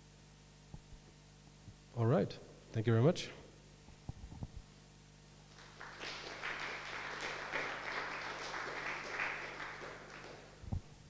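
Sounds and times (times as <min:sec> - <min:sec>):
audience applauding: 0:05.5 - 0:10.6.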